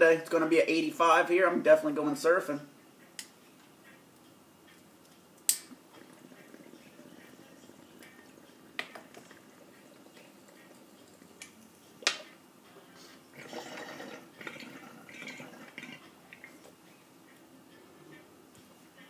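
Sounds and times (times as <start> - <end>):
water bong bubbling: 5.7 - 12.0, 13.3 - 16.7.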